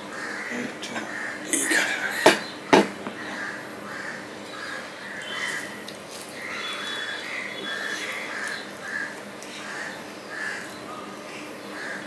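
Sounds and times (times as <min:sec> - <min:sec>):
crows cawing: 0:00.0 - 0:12.0
high bird chirps: 0:04.5 - 0:08.7.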